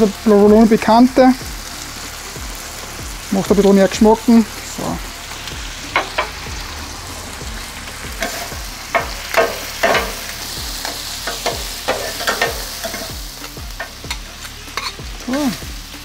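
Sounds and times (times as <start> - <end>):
steak and onions sizzling on griddle: 0.0 - 16.0
metal spatulas scraping and clinking: 10.8 - 15.4.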